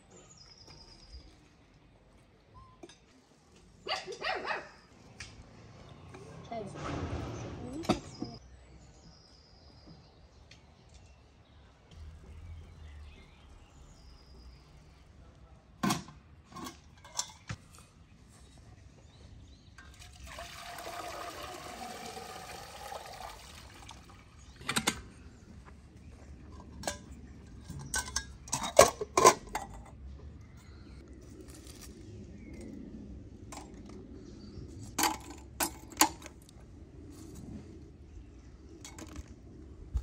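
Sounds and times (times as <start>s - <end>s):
water pouring: 19.8s - 24.6s.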